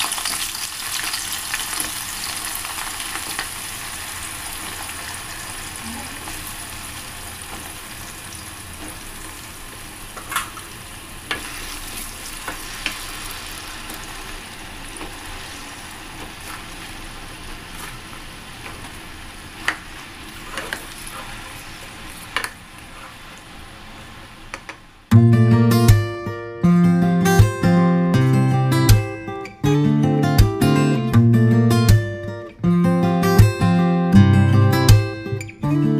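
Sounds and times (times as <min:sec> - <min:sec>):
eggplant sizzling in oil: 0:00.0 - 0:24.6
wooden spatula scraping a wok: 0:15.0 - 0:23.3.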